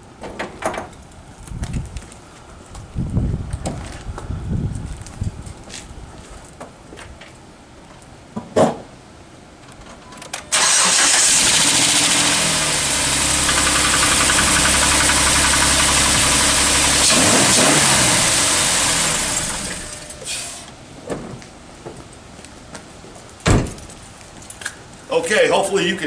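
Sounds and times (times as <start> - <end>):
car engine starting and running: 10.5 - 20.7
engine knock: 12.9 - 18.6.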